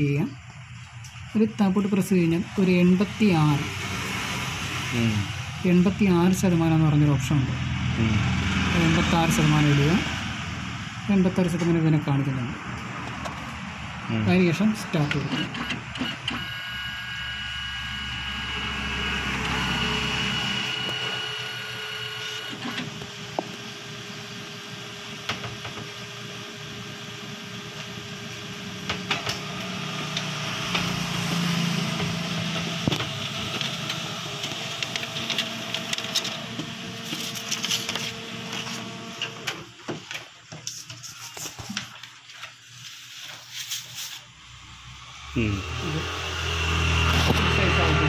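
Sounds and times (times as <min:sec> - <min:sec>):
motor hum: 0:00.4 - 0:39.9, 0:44.5 - 0:48.0
photocopier whirring: 0:11.2 - 0:43.5.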